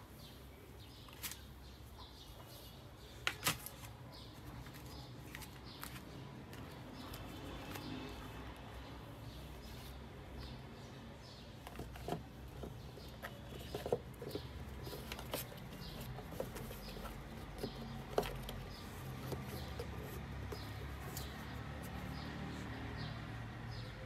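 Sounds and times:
cardboard box handled: 11.7s - 22.0s.

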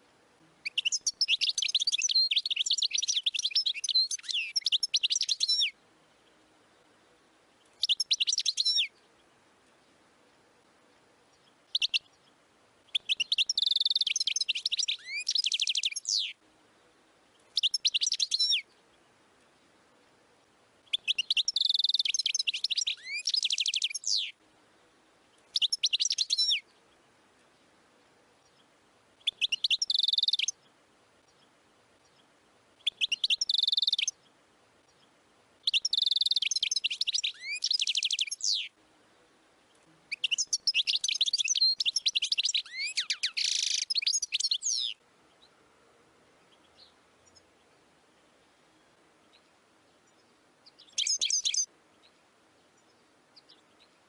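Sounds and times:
bird twittering: 0.6s - 5.8s, 7.8s - 8.9s, 11.7s - 12.1s, 12.9s - 16.4s, 17.5s - 18.7s, 20.9s - 24.4s, 25.5s - 26.6s, 29.2s - 30.6s, 32.8s - 34.2s, 35.6s - 38.7s, 40.1s - 45.0s, 50.8s - 51.7s.

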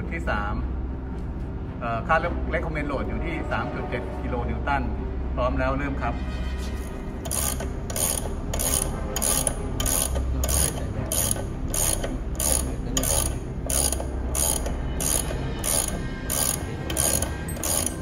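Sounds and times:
ratcheting handle clicks: 7.2s - 18.0s.

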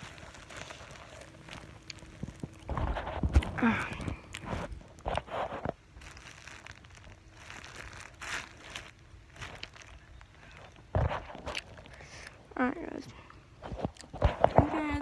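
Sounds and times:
cloth rustling against microphone: 0.0s - 12.0s.

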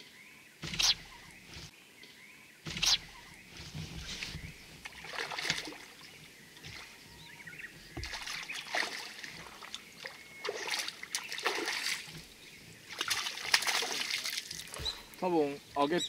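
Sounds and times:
fish splashing in water: 2.7s - 15.2s.

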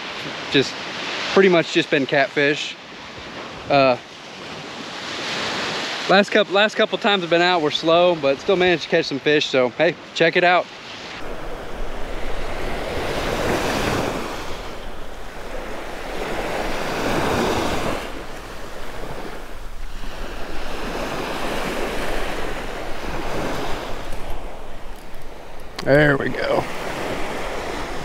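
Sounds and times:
surf waves breaking: 0.0s - 8.9s, 10.4s - 28.0s
wind buffeting microphone: 11.2s - 28.0s.

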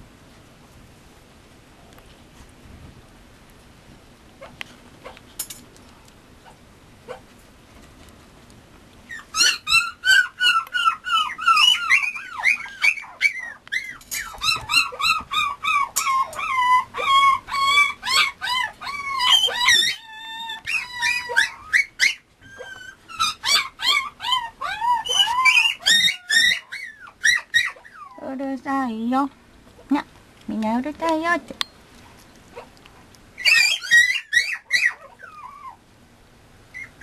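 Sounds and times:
puppy whimpering: 9.1s - 28.4s, 33.4s - 35.8s, 36.7s - 37.0s.

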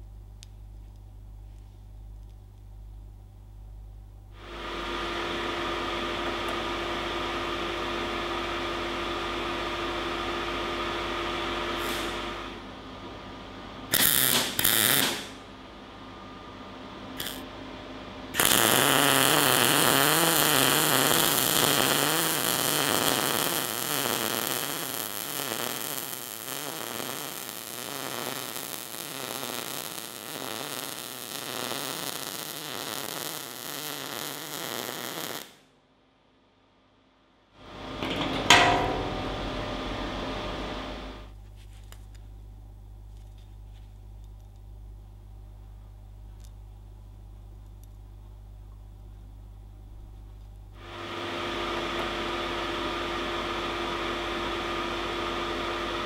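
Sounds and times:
crackling buzzing welding arc: 13.9s - 15.4s, 17.2s - 17.4s, 18.4s - 35.7s
welder humming: 17.2s - 17.4s, 18.4s - 35.6s, 37.7s - 41.3s.

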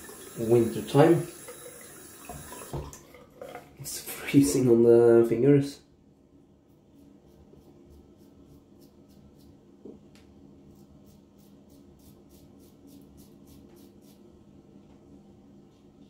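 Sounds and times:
razor scraping stubble: 6.7s - 9.6s, 10.7s - 14.2s.

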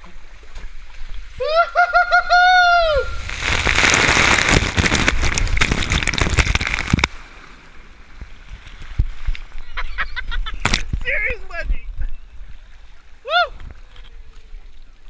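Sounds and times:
person shouting: 2.3s - 3.2s, 13.2s - 13.6s
water rushing and splashing: 2.8s - 9.9s.

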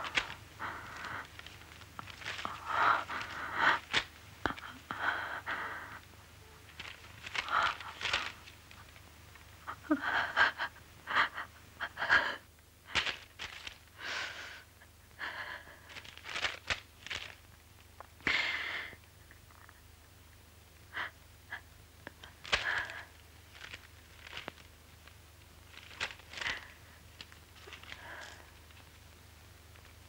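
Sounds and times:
woman sobbing and gasping: 9.6s - 13.0s.

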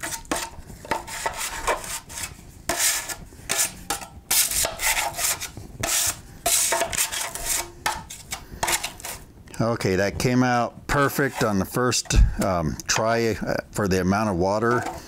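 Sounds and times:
knife scraping compound in metal pan: 0.0s - 9.3s, 10.9s - 12.2s, 14.6s - 15.0s.

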